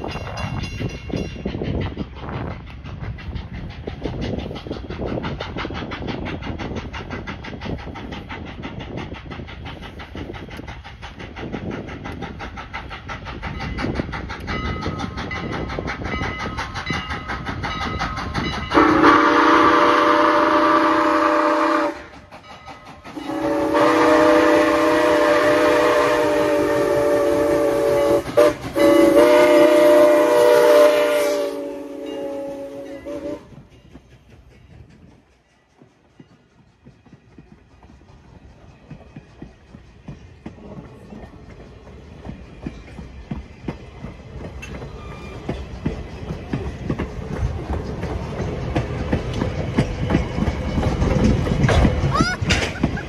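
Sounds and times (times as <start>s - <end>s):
steam locomotive exhaust chuffs: 0.0s - 53.0s
chime steam whistle blasts: 18.6s - 22.1s, 23.1s - 33.7s.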